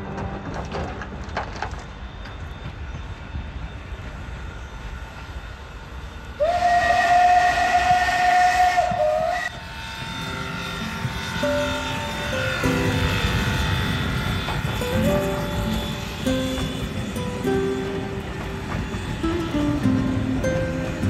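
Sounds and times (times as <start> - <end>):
train clanks: 0.0 - 21.0
train rumble: 0.0 - 21.0
steam locomotive whistle: 6.4 - 20.5.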